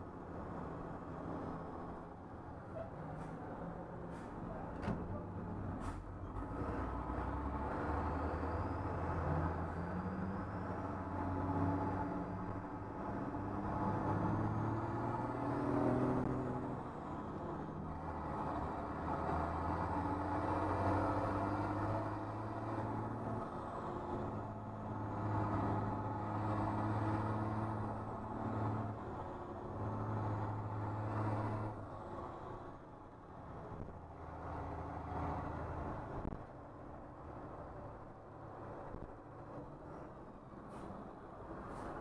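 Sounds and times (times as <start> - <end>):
bus engine revving: 5.8 - 32.6.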